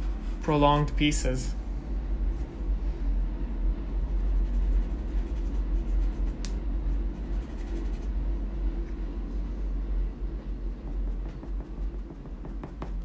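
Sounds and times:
steady low hum: 0:00.0 - 0:13.0
pencil scratching on paper: 0:07.2 - 0:08.1, 0:10.7 - 0:13.0.

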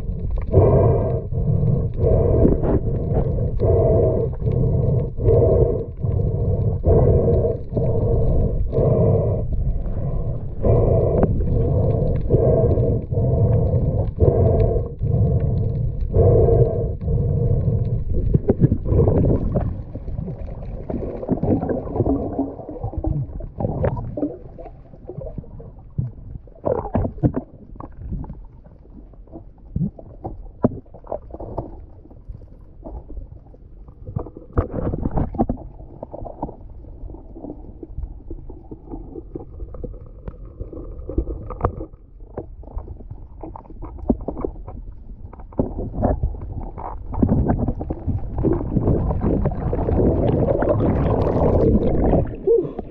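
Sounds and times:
muffled underwater rumble: 0:00.0 - 0:52.9
underwater knocks and scrapes: 0:01.9 - 0:06.2, 0:17.7 - 0:52.9.

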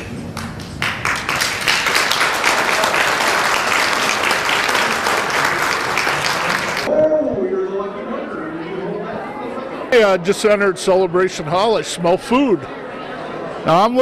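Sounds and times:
audience applauding: 0:00.3 - 0:06.9.

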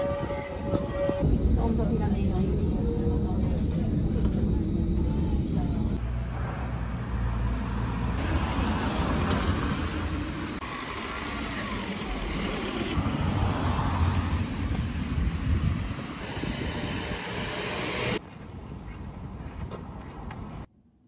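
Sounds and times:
wind on microphone: 0:00.0 - 0:06.0, 0:12.9 - 0:20.0
traffic rumble: 0:00.0 - 0:20.7.

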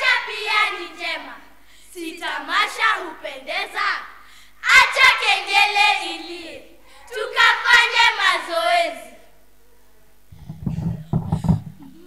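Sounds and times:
children singing in unison: 0:00.0 - 0:09.3.

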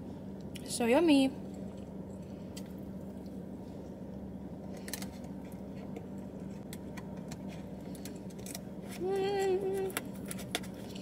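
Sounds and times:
low hum inside car: 0:00.0 - 0:11.0.

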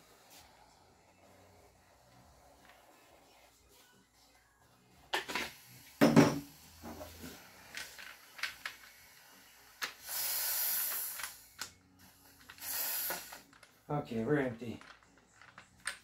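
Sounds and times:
gas venting hiss: 0:00.0 - 0:03.5, 0:05.0 - 0:13.8.

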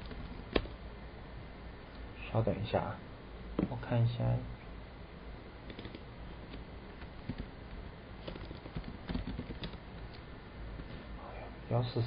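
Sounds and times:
computer keyboard typing: 0:00.0 - 0:00.8, 0:05.6 - 0:07.5, 0:08.2 - 0:10.2
low background hum: 0:00.0 - 0:12.0.

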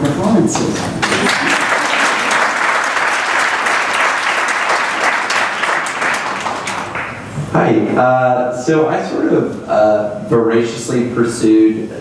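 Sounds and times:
audience applauding: 0:01.0 - 0:07.3.

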